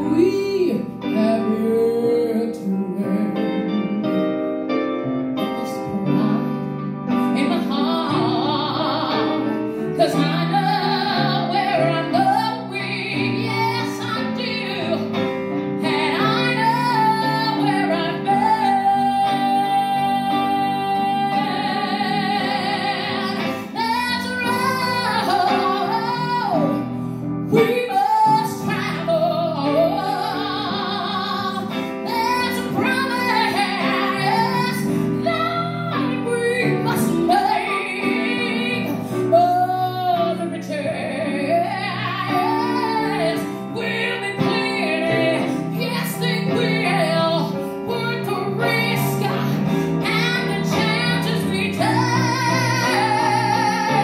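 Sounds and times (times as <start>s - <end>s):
woman singing: 0.0s - 4.5s, 5.4s - 54.0s.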